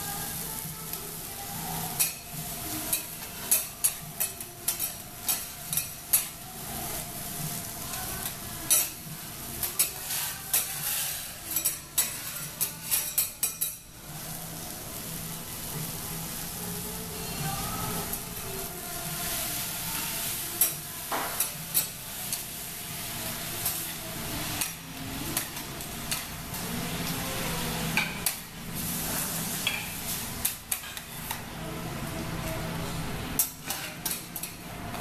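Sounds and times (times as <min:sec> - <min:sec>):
food sizzling on griddle: 0:00.0 - 0:35.0
metal spatulas scraping and tapping: 0:02.9 - 0:06.3, 0:09.6 - 0:13.8, 0:29.6 - 0:31.4, 0:33.4 - 0:34.6.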